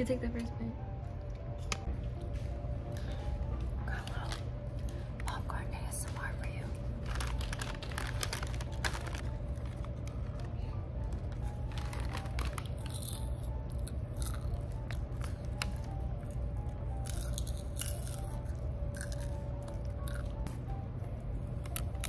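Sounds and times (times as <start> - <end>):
popcorn chewing crunches: 11.6 - 20.5, 21.6 - 22.0.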